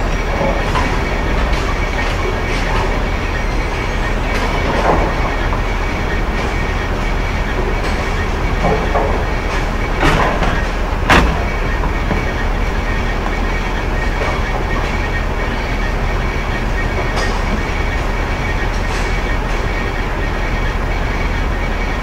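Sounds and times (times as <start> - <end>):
bowling pins crashing: 0.0 - 21.4
bowling balls rolling on lanes: 0.0 - 22.0.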